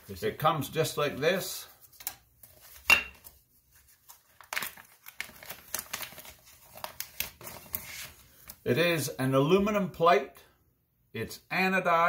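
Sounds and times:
plastic bag crinkling: 4.0 - 7.8.

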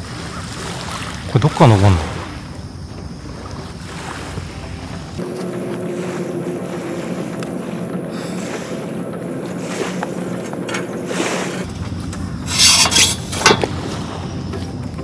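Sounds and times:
wind: 0.0 - 15.0
low drone: 4.5 - 15.0.

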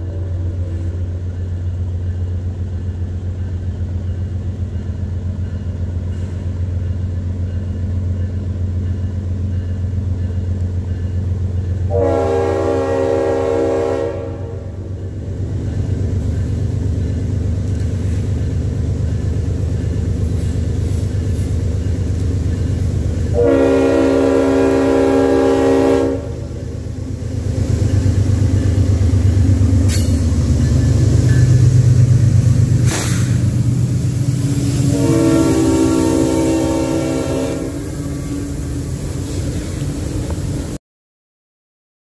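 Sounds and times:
diesel locomotive engine droning: 0.0 - 40.8
locomotive air horn blasts: 11.9 - 14.8, 23.3 - 26.6, 34.7 - 38.6.

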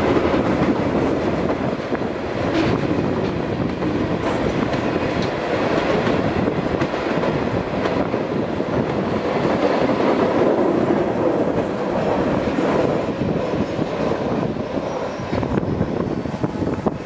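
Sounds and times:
freight train wheels on rails: 0.0 - 17.0.

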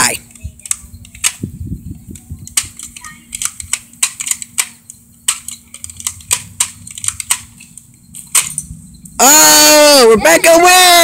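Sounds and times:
toy blaster plastic clicks: 0.3 - 1.4, 2.5 - 7.5.

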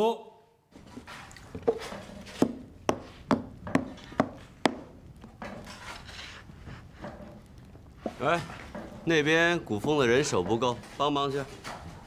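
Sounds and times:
soft scraping: 5.3 - 12.0.

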